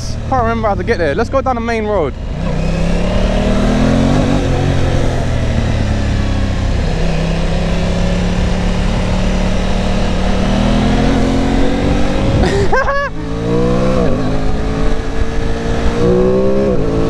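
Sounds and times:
motorcycle engine revving: 0:00.0 - 0:17.0
wind rush: 0:08.4 - 0:17.0.

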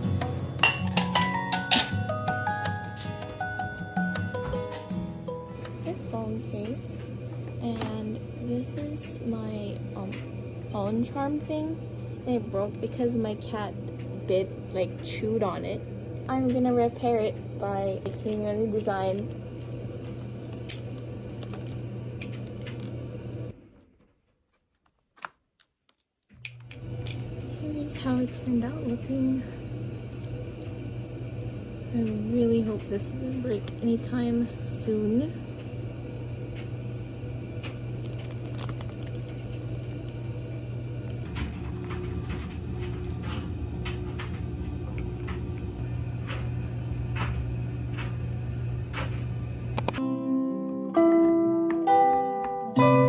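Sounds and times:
steady low hum: 0:00.0 - 0:23.9, 0:26.3 - 0:50.0
low hum: 0:26.4 - 0:50.0
beads clicking: 0:30.1 - 0:31.5, 0:38.0 - 0:40.3.

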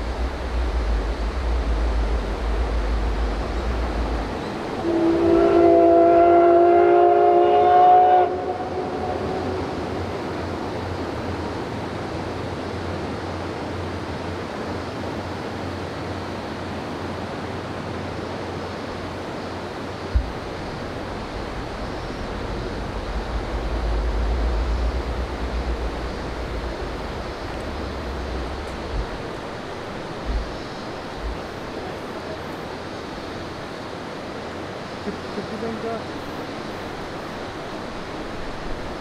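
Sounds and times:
low rumble: 0:00.0 - 0:04.8, 0:20.2 - 0:30.6
steady outdoor rushing noise: 0:00.0 - 0:07.4, 0:08.3 - 0:39.0.

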